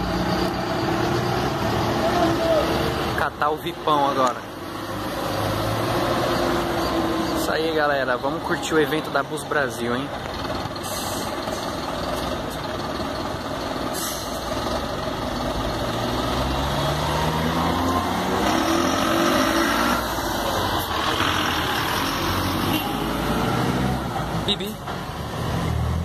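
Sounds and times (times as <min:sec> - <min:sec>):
diesel bus driving past: 0:00.0 - 0:26.0
air brakes hissing: 0:10.8 - 0:11.7, 0:13.9 - 0:14.5.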